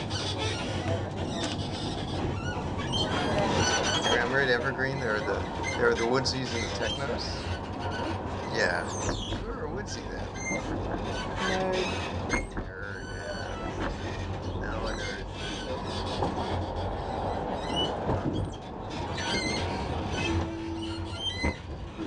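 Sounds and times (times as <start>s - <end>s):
high wheel squeaks: 0.0s - 22.0s
tram wheels and motors rumbling: 0.0s - 22.0s.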